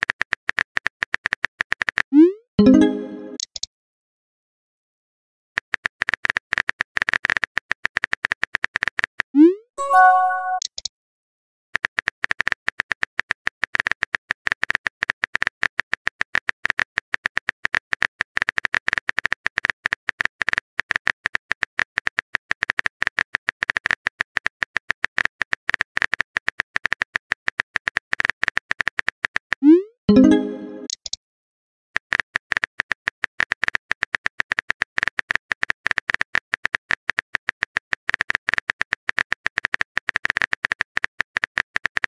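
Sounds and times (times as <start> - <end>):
message notification tone: 2.6 - 3.4, 9.8 - 10.7, 29.6 - 30.9
keystroke click sound effects: 2.6 - 3.7, 9.8 - 10.9, 29.6 - 31.2.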